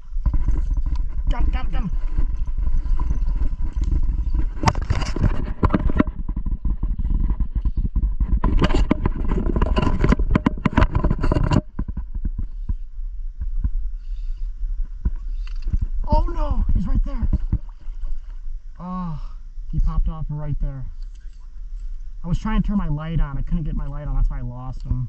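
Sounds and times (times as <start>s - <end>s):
low rumble: 0.0s - 25.0s
phone rustling and clattering: 2.0s - 12.4s.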